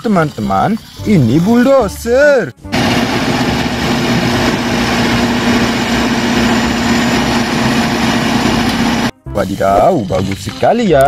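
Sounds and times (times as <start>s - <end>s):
bulldozer diesel engine running: 2.7s - 9.1s.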